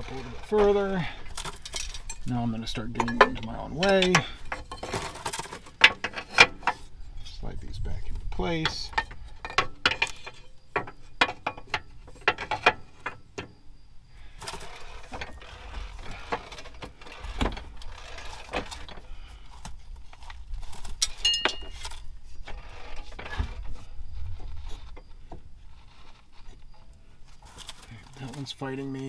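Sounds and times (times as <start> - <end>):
metal clinks and scrapes: 0.0 - 13.6, 14.3 - 29.0
short metallic ring: 21.2 - 21.8.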